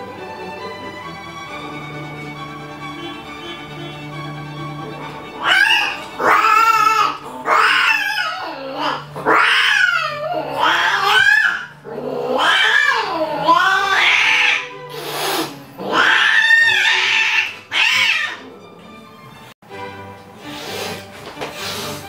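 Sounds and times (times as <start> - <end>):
cat yowling: 5.4 - 18.6.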